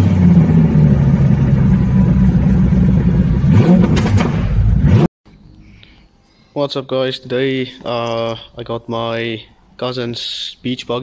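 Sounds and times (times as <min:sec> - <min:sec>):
car engine revving: 0:00.0 - 0:05.1.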